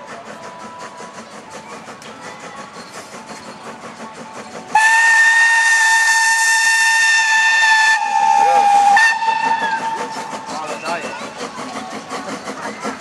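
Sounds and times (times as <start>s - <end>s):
steam locomotive puffing: 0.0s - 13.0s
steam whistle blast: 4.7s - 10.1s.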